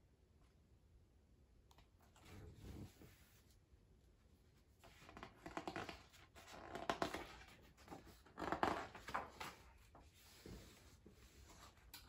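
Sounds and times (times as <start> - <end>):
book pages rustling: 4.8 - 12.0.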